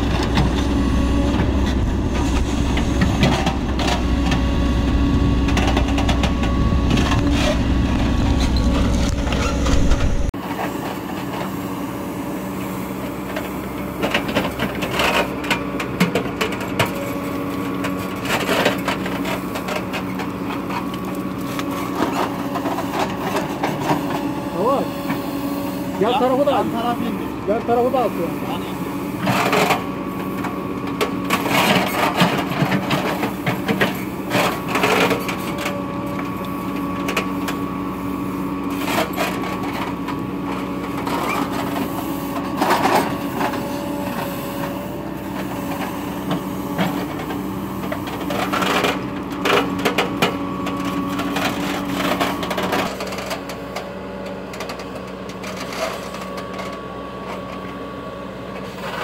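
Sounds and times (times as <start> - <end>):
hydraulic whine: 0.0 - 10.4
diesel engine running: 0.0 - 59.0
bucket clanking and scraping stones: 27.7 - 35.8.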